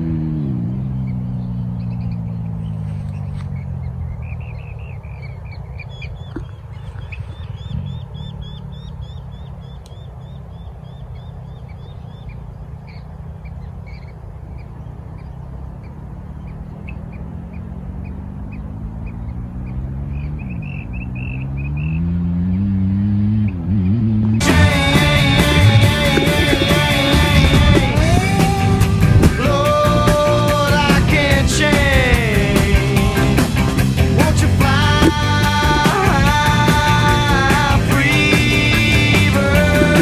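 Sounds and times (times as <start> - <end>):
birds chirping: 0.0 - 40.0
motorbike engine revving: 0.0 - 40.0
low rumble: 23.9 - 40.0.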